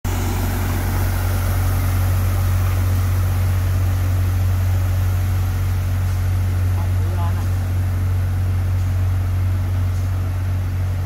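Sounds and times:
truck engine low drone: 0.0 - 11.0.

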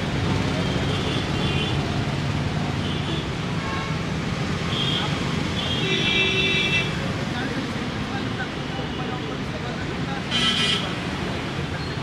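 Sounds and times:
road traffic: 0.0 - 12.0.

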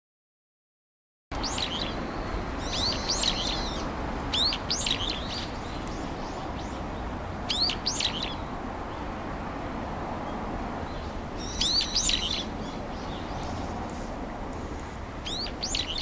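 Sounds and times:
bird calling shrill notes: 1.4 - 5.6, 7.5 - 8.4, 11.4 - 12.8
steady background hiss: 1.4 - 16.0.

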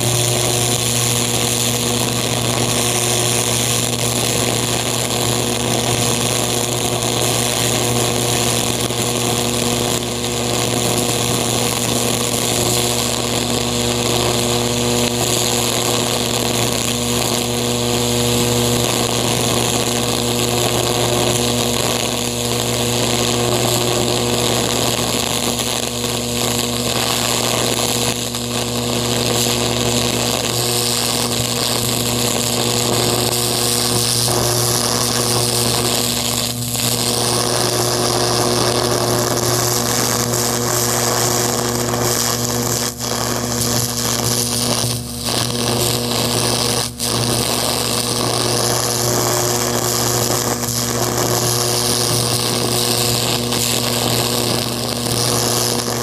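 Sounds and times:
electric arc buzzing and hissing: 0.0 - 56.0.

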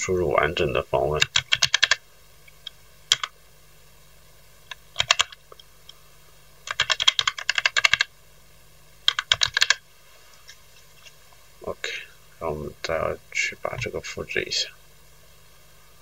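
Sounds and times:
computer keyboard typing: 1.2 - 2.0, 3.1 - 3.3, 4.7 - 5.4, 6.6 - 8.1, 9.0 - 9.8.

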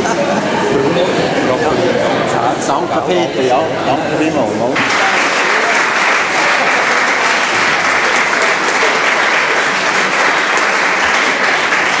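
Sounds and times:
crowd applauding: 4.8 - 12.0.

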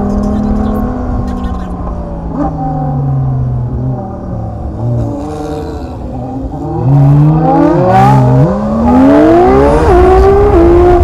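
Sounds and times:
car engine accelerating through gears: 0.0 - 11.0.

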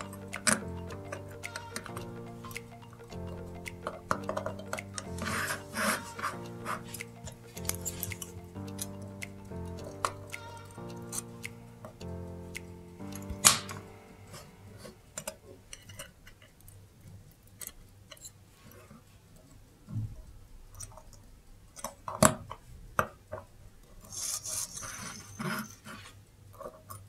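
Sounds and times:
small tool clicks and taps: 0.0 - 13.9.

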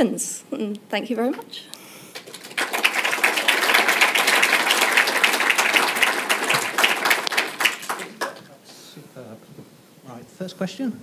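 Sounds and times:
audience applauding: 2.1 - 8.6.

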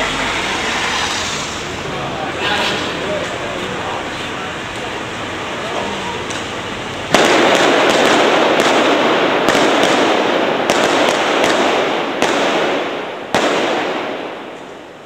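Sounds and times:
rapid gunfire echoing: 7.1 - 14.6.

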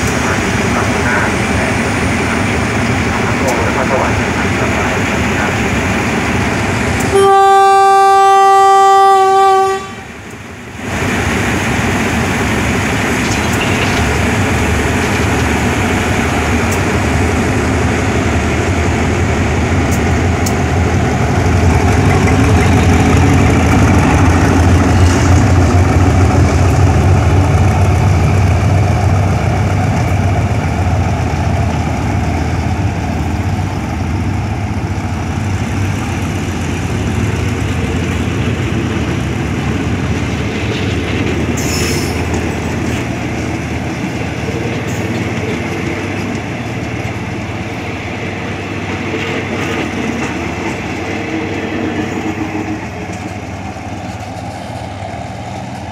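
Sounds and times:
train carriages rolling by: 0.0 - 55.9
locomotive horn blast: 7.1 - 10.1.

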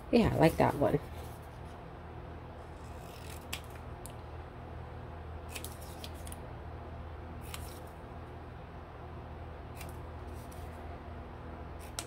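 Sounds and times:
scissors snipping paper: 2.8 - 3.8.

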